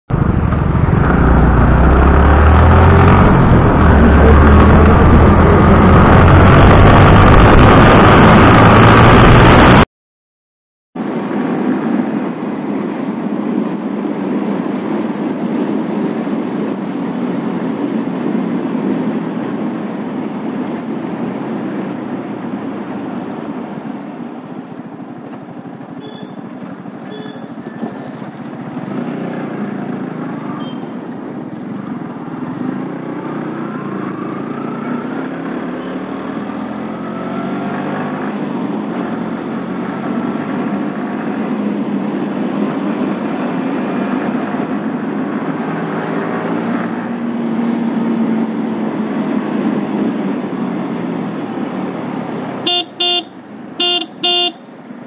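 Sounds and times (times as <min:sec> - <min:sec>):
road and wind noise: 0:00.0 - 0:09.9, 0:11.0 - 0:55.0
motorcycle engine running: 0:00.1 - 0:07.4.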